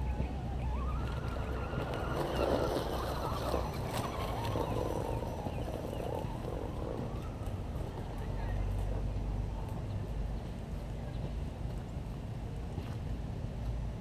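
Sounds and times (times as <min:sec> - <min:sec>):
twigs crackling under tyres: 0:00.1 - 0:11.8
rc car motor whining: 0:01.0 - 0:07.4.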